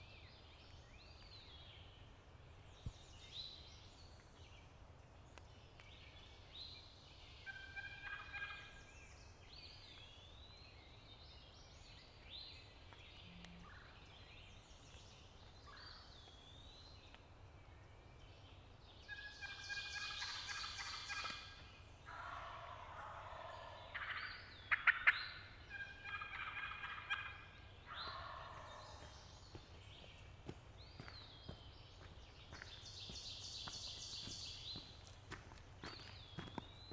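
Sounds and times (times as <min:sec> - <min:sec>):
turkey gobbling: 0:07.5 - 0:08.7, 0:19.1 - 0:21.4, 0:22.1 - 0:29.1.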